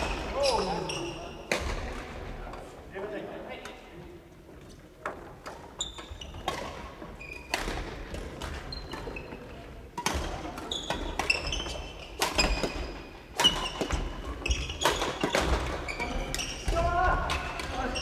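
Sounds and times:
shoes squeaking on wooden floor: 0:05.7 - 0:07.7, 0:10.6 - 0:16.9
racket hitting shuttlecock: 0:06.4 - 0:17.9.

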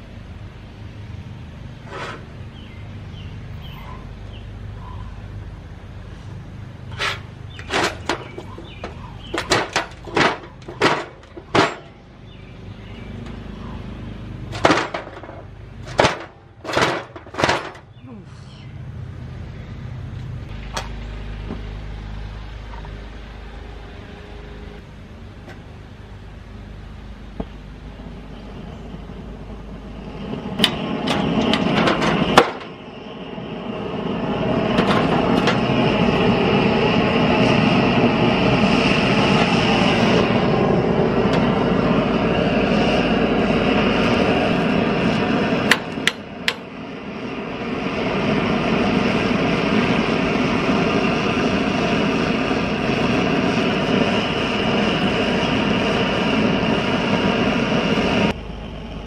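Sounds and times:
blowtorch flame rushing: 0:01.1 - 0:03.8, 0:05.4 - 0:18.2, 0:20.5 - 0:59.0
metallic clanks: 0:06.9 - 0:12.0, 0:14.5 - 0:17.9.

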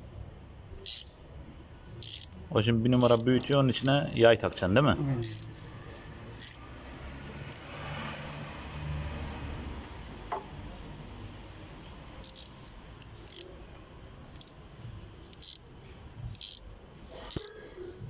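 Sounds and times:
metal tools clicking and scraping: 0:00.8 - 0:01.1, 0:02.0 - 0:02.4, 0:03.0 - 0:04.0, 0:05.2 - 0:05.6, 0:06.3 - 0:06.6, 0:11.8 - 0:13.5, 0:14.3 - 0:14.6, 0:15.2 - 0:17.7.

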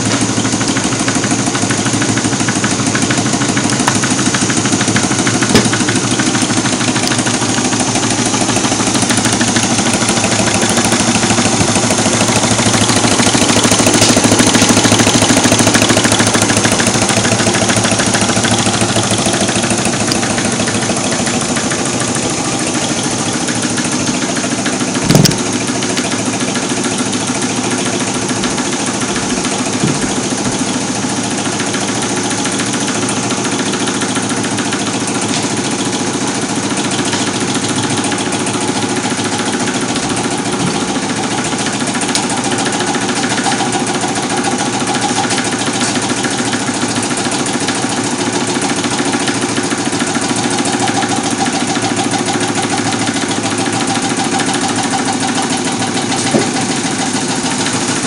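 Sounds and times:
gas burners hissing: 0:00.0 - 0:58.0
stirling engine clattering: 0:00.0 - 0:58.0
brief thump: 0:05.5 - 0:05.9, 0:25.0 - 0:25.5.

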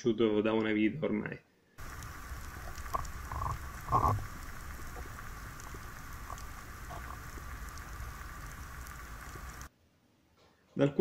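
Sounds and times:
faint underwater clicks and crackles: 0:01.8 - 0:09.7
underwater low rumble and hiss: 0:01.8 - 0:09.7.

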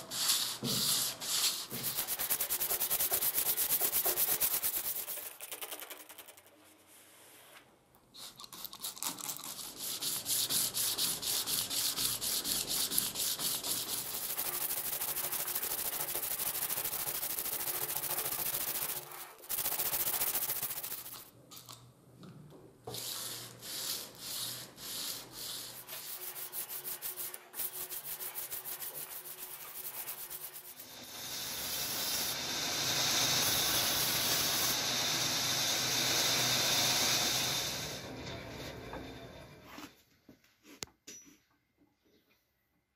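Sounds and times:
sanding steel: 0:00.0 - 0:05.3, 0:09.5 - 0:21.2, 0:23.0 - 0:37.8.

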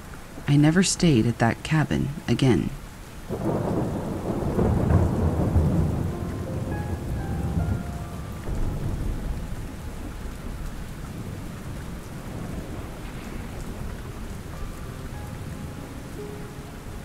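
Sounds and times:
steady rain: 0:00.0 - 0:17.0
low roll of thunder: 0:03.3 - 0:15.7.

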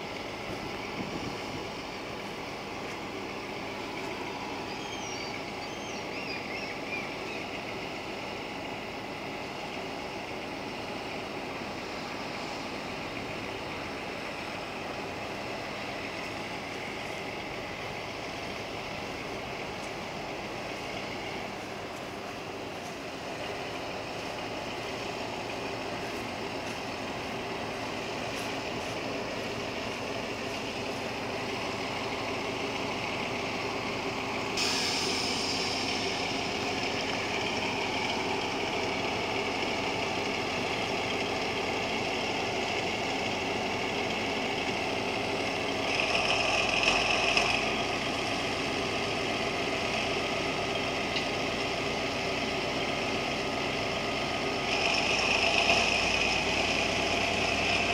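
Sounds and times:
diesel locomotive engine running: 0:00.0 - 0:57.9
loud hissing burst: 0:34.6 - 0:36.8
high hiss: 0:34.6 - 0:37.4.

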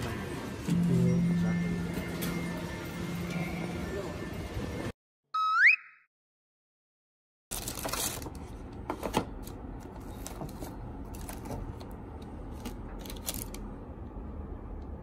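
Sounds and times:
plastic bags rustling and crinkling: 0:07.5 - 0:08.4, 0:09.9 - 0:11.8, 0:12.5 - 0:13.6
sharp plastic crackles: 0:07.5 - 0:08.4, 0:09.0 - 0:13.7.

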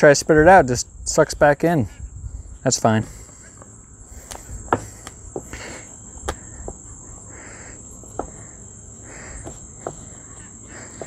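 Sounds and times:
insects chorus: 0:00.0 - 0:11.0
hands pressing dough on wood: 0:03.6 - 0:06.9, 0:08.0 - 0:11.0.

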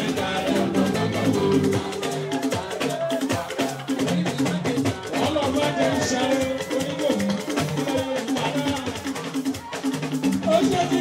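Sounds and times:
dance music: 0:00.0 - 0:08.8
drums and shakers beat: 0:00.0 - 0:11.0.

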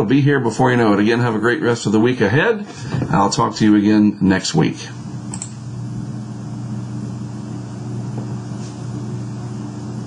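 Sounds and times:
low machine hum: 0:00.0 - 0:10.0.

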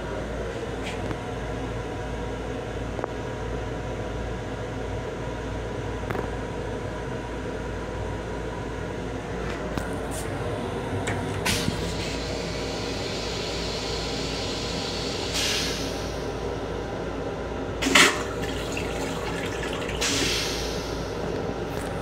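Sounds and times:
toilet flushing whoosh: 0:17.8 - 0:21.2.

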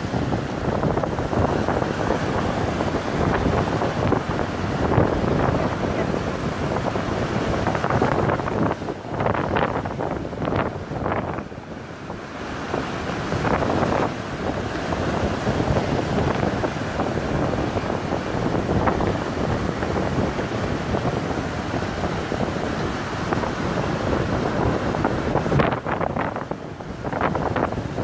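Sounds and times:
surf washing up pebbly beach: 0:00.0 - 0:28.0
wind rumbling on microphone: 0:00.0 - 0:28.0.

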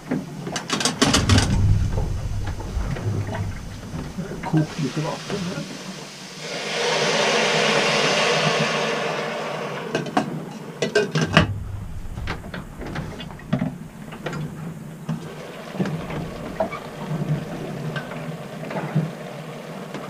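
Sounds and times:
steady low hum: 0:01.0 - 0:06.4, 0:11.2 - 0:18.3.

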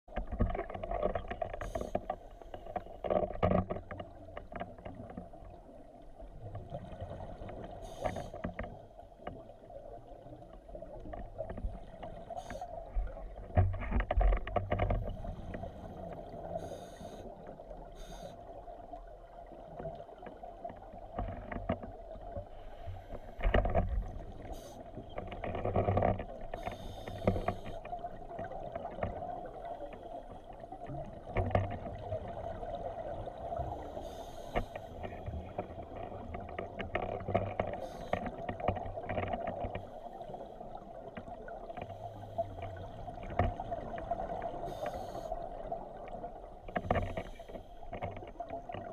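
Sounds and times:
underwater exhaled bubbles: 0:21.9 - 0:48.9.

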